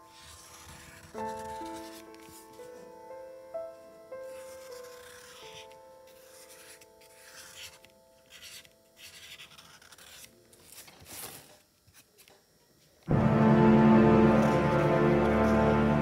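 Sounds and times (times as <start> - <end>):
marker drawing on cardboard: 0.0 - 2.4, 4.3 - 10.3
held music chord: 13.1 - 16.0.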